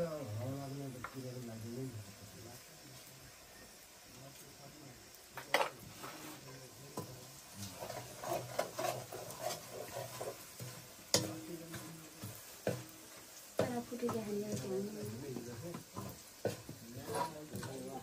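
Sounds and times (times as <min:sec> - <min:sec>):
faint sizzle: 0:00.0 - 0:18.0
metal spatula scraping a wok: 0:05.5 - 0:18.0.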